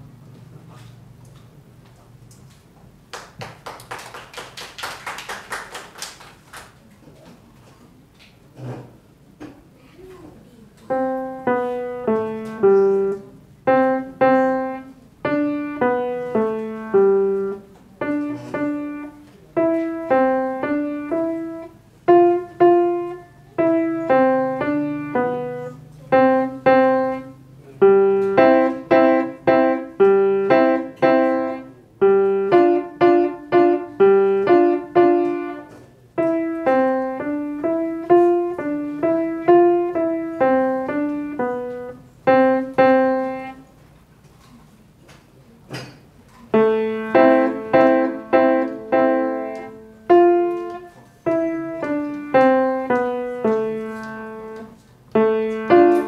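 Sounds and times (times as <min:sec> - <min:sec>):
solo grand piano: 0:10.8 - 0:43.6, 0:46.5 - 0:56.0.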